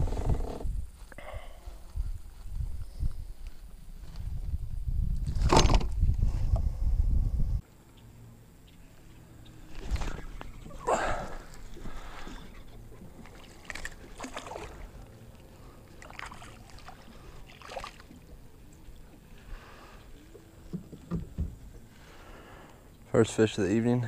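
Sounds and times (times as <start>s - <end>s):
water splashing beside kayak: 9.6s - 22.8s.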